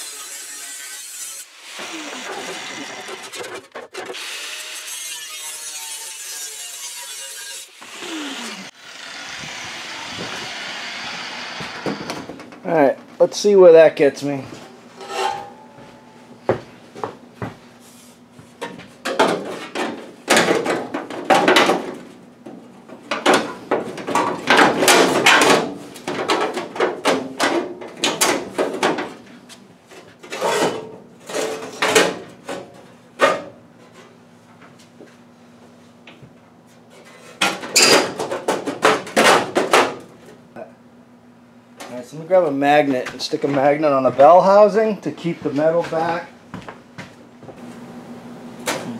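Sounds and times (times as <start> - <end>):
sheet metal clanking and scraping: 15.0 - 16.0.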